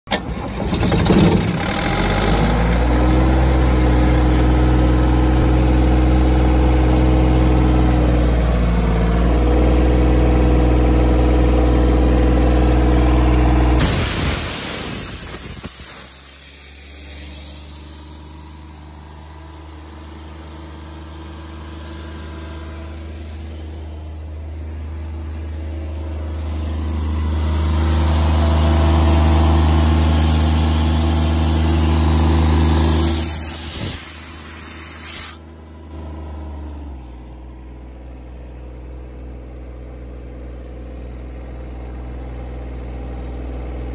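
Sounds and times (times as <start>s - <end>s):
engine starting: 0.1s - 3.8s, 13.8s - 18.5s, 32.9s - 35.4s
diesel engine idling: 1.6s - 13.8s, 15.8s - 43.9s.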